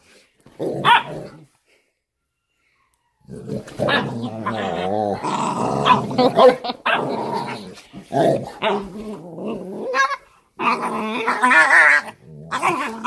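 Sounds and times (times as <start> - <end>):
dogs growling: 3.2 - 13.0.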